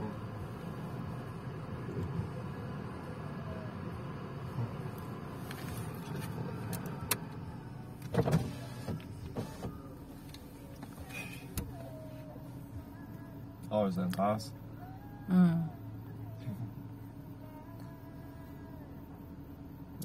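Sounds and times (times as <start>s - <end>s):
low hum of stationary car: 0.0s - 20.0s
car electric window motor: 4.7s - 12.2s
window clunk: 8.0s - 9.8s.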